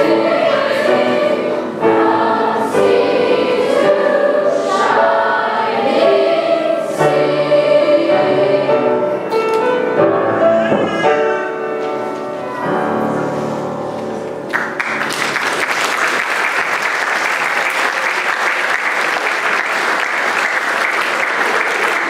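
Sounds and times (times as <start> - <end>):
choir singing with piano: 0.0 - 14.5
audience applause: 14.5 - 22.0.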